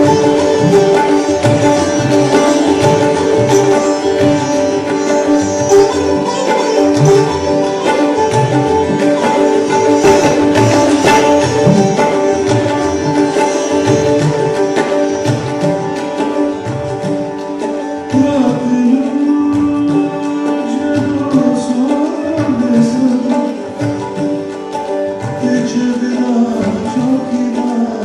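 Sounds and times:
sitar: 0.0 - 28.0
tabla: 0.0 - 28.0
man singing: 18.2 - 23.6, 25.4 - 28.0.

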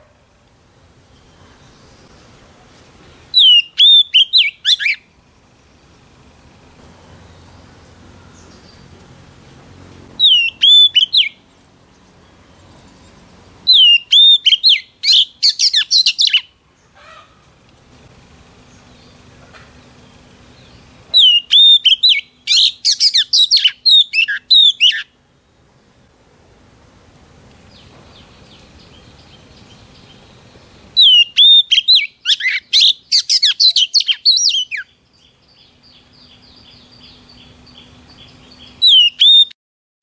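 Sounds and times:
bird singing: 1.0 - 6.3, 7.2 - 9.0, 10.2 - 17.1, 18.6 - 25.2, 27.7 - 39.6.

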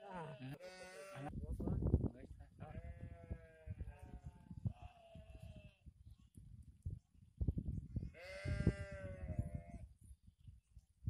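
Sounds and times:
farm animal bleating: 0.0 - 1.3, 2.6 - 5.8, 8.1 - 9.8.

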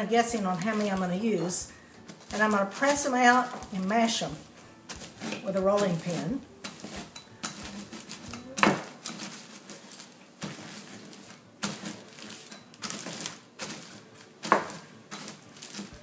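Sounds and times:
cookies crunching under rolling pin: 0.0 - 16.0.

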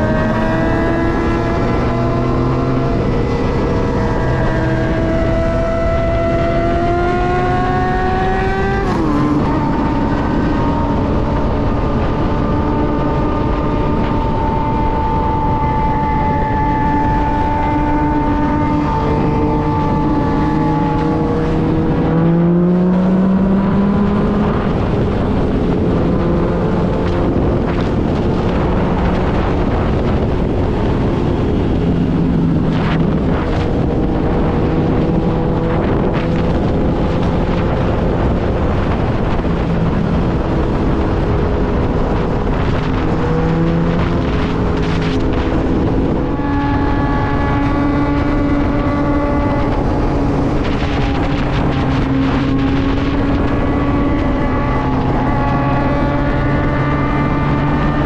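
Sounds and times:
motorcycle engine running: 0.0 - 58.0
wind noise on microphone: 0.0 - 58.0.

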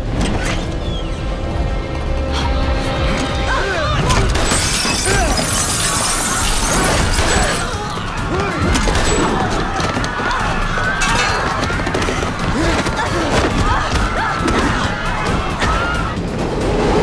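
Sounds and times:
crashing and shattering impacts: 4.1 - 8.0.

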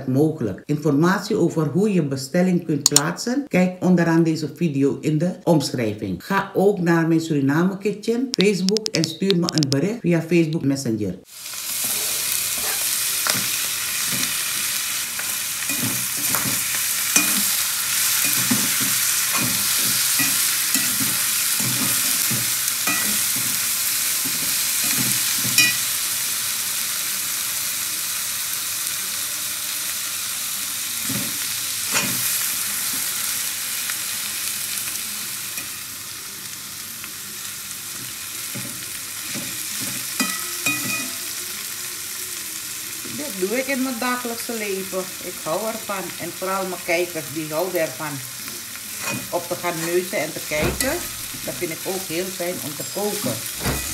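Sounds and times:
food sizzling in a wok: 11.2 - 53.9
metal spoon scraping a pan: 11.6 - 25.9, 31.1 - 33.1, 38.5 - 41.3, 48.9 - 51.7.

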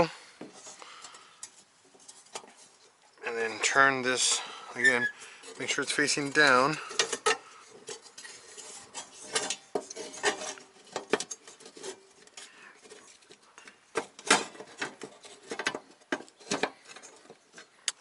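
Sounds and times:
headlight parts clicking and clinking: 5.4 - 13.4.

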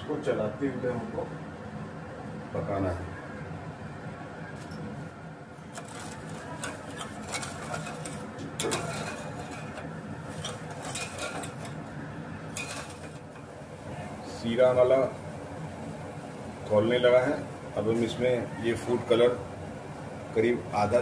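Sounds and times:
spoon scraping and clinking in pot: 5.8 - 11.8, 12.5 - 13.5.

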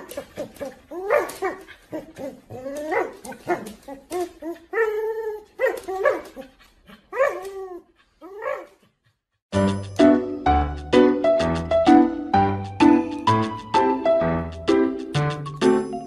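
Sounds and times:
husky whining cries: 0.0 - 8.8.

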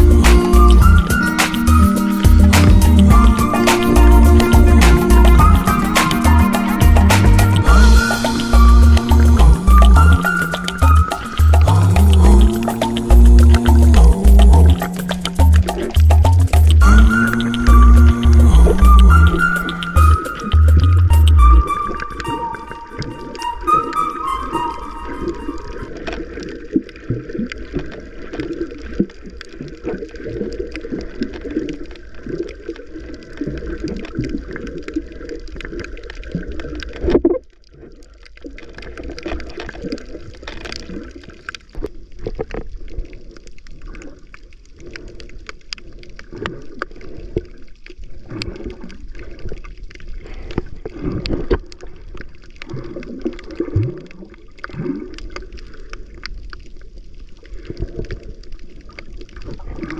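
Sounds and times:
bubbling glides: 0.0 - 59.9
muffled underwater water sloshing: 0.0 - 59.9
small clicks underwater: 9.8 - 17.7, 25.9 - 59.9.

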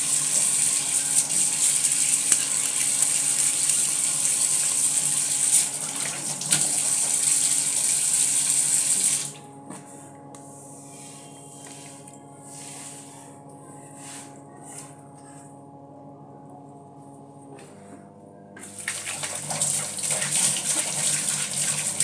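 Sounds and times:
tap water running: 0.0 - 9.4, 18.6 - 22.0.

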